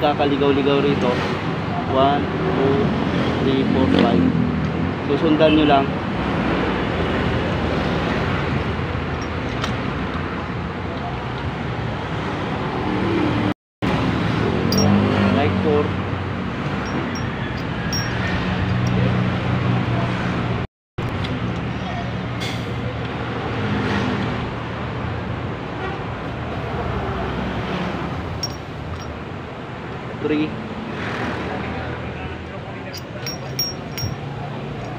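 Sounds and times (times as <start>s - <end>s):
road traffic noise: 0.0s - 34.9s
metallic clink: 14.7s - 15.1s, 16.8s - 19.1s, 28.4s - 29.2s, 32.9s - 34.9s.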